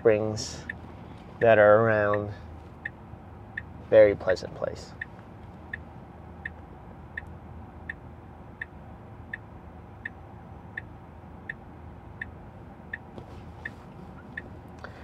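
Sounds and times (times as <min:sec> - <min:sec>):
road noise hum in car cabin: 0:00.0 - 0:15.0
turn signal ticking: 0:00.0 - 0:15.0.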